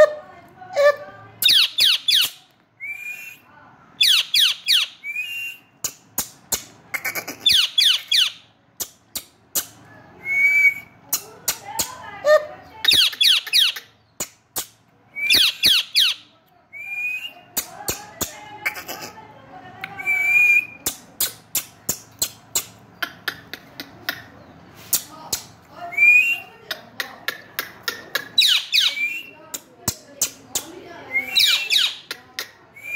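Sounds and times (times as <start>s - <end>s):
parakeet low chatter: 5.8s - 9.9s, 17.5s - 20.0s, 20.6s - 25.6s, 26.3s - 32.8s
parakeet whistling: 28.4s - 29.4s, 31.1s - 32.0s.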